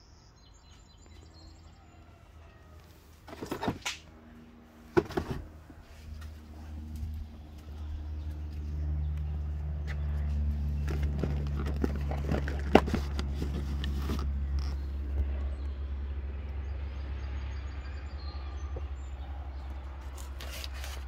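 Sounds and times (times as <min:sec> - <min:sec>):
steady low hum: 0:00.9 - 0:21.0.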